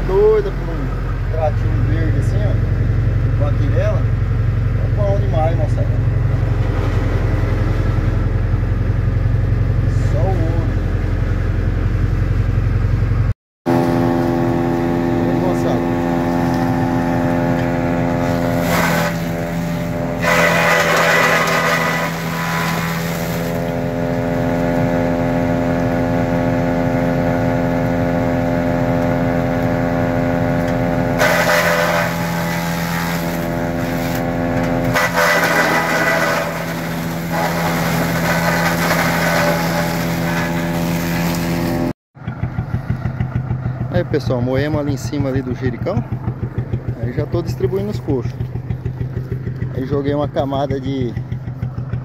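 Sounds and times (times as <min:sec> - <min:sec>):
tractor engine drone: 0:00.0 - 0:52.0
forage chopper chopping stalks: 0:13.7 - 0:24.9, 0:30.5 - 0:41.9.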